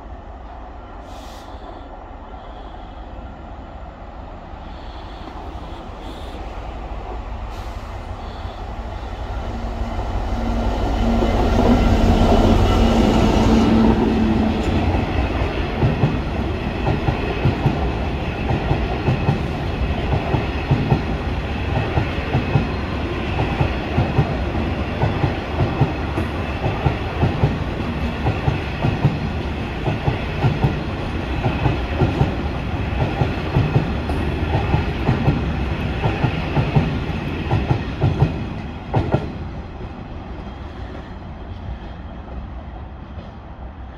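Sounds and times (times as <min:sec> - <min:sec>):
diesel locomotive passing: 0:00.0 - 0:43.9
train wheels clicking over rail joints: 0:14.6 - 0:39.4.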